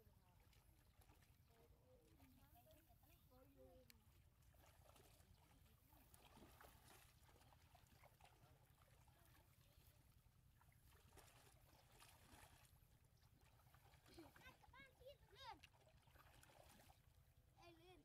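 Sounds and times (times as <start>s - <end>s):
shallow water sloshing: 0.0s - 18.0s.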